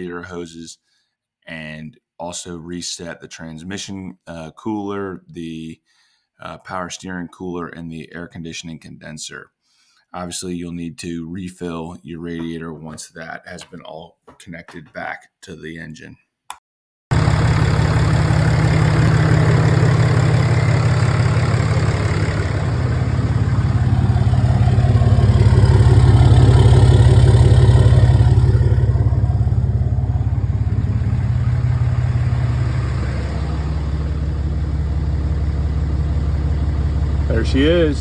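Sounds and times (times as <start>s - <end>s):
diesel engine idling: 17.1s - 38.0s.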